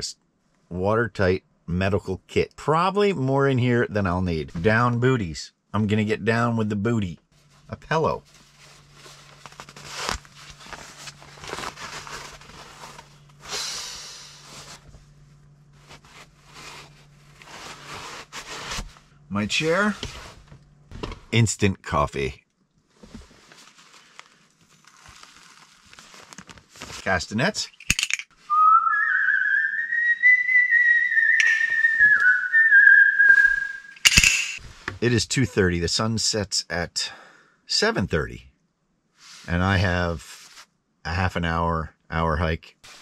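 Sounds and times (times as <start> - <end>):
steady low hum: 3.4 - 24.8
nylon rustling and crinkling: 8.2 - 13.4, 15.7 - 19.0, 23.0 - 27.2
person whistling long note: 28.5 - 34.0.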